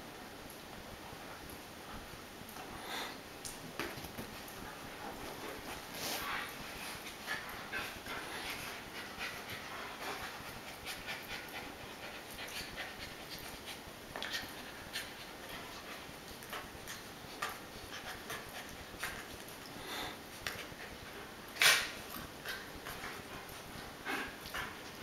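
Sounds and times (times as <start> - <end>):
dogs scuffling on rug: 1.2 - 25.0
dog panting: 4.8 - 25.0.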